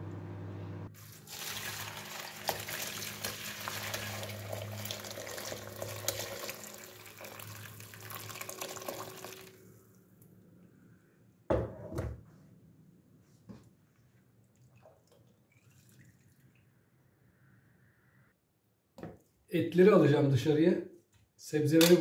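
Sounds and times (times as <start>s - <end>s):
broth pouring into colander: 0.9s - 9.6s.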